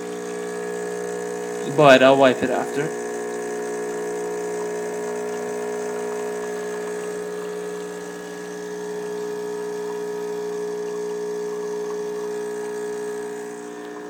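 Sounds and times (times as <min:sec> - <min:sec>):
espresso machine pump buzzing: 0:00.0 - 0:14.0.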